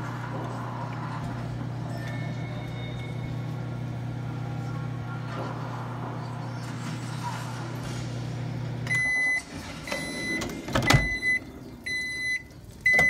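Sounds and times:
microwave oven humming: 0.0s - 13.0s
microwave beeps: 1.7s - 4.6s, 8.6s - 13.0s.

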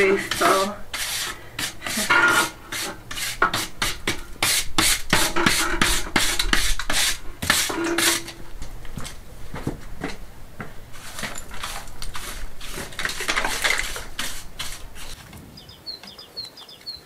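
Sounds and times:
trowel and wire brush scraping: 0.0s - 8.5s, 10.9s - 15.2s.

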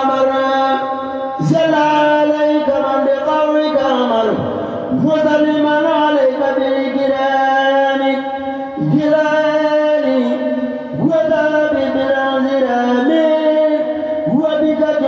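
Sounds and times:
person chanting over loudspeaker: 0.0s - 15.0s.

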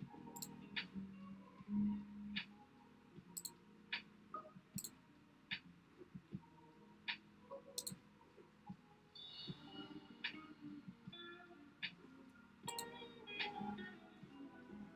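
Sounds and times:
computer mouse clicks: 3.4s - 3.6s, 12.7s - 12.9s.

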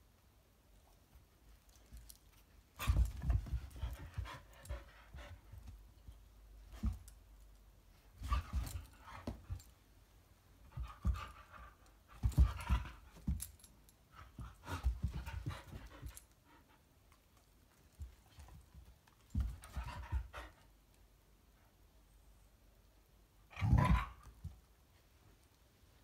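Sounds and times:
rustling: 0.7s - 20.3s.

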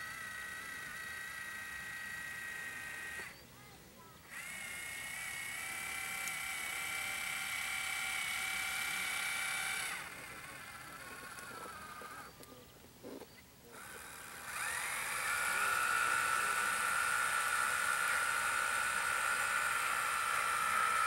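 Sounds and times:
small electric motor whining: 0.0s - 21.0s.

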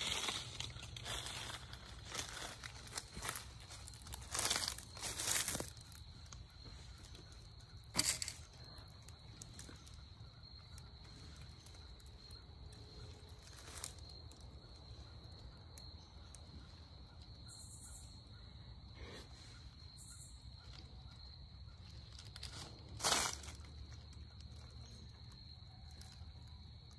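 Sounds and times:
dry leaves crunching: 0.0s - 14.3s, 21.8s - 25.0s.

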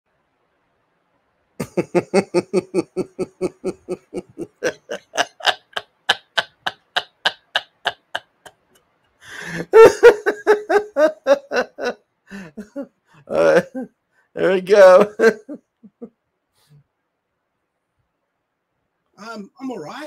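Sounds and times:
person laughing: 1.6s - 8.7s, 9.3s - 13.9s, 14.8s - 16.1s.

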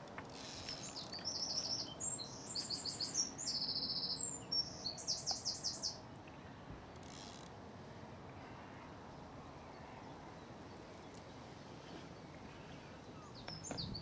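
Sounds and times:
outdoor background noise: 0.0s - 14.0s
bird singing high trill: 0.7s - 6.0s.

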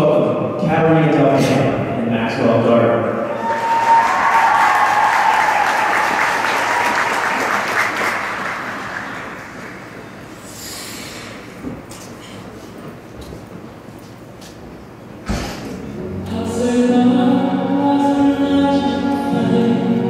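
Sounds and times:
audience applauding: 3.4s - 10.1s
brief high hiss: 10.4s - 11.5s.

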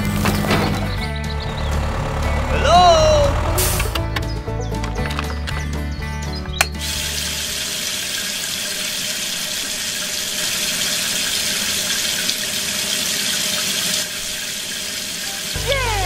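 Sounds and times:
water pouring from hose: 6.8s - 16.0s.

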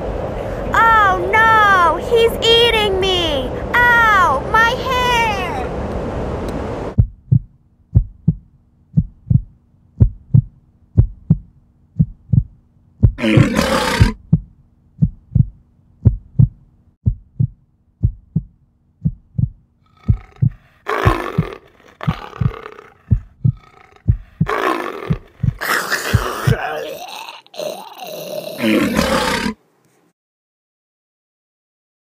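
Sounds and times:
low heartbeat-like thump: 7.0s - 13.2s, 14.0s - 26.3s
loud growling roar: 13.2s - 14.2s, 20.0s - 29.6s.

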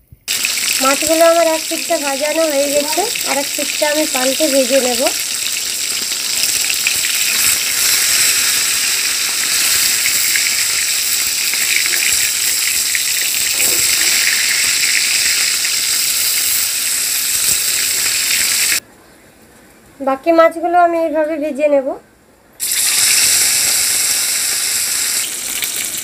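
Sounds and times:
fish sizzling in hot oil: 0.2s - 18.8s, 22.6s - 26.0s.

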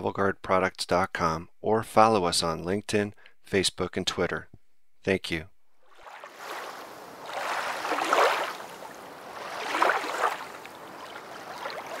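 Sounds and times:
rushing splashing water: 5.9s - 12.0s.

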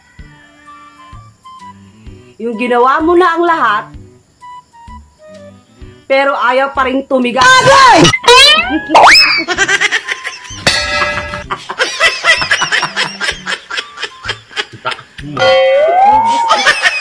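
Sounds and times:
background music: 0.0s - 17.0s
people laughing: 8.8s - 15.5s, 16.1s - 17.0s.

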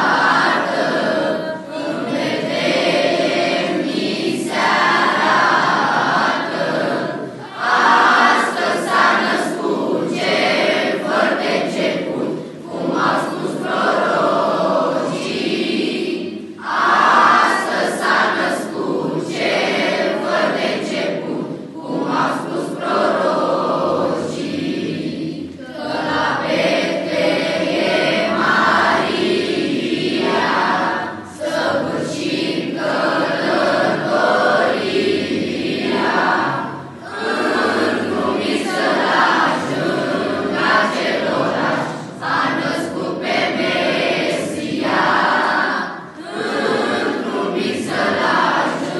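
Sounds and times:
children's choir singing: 0.0s - 48.9s.

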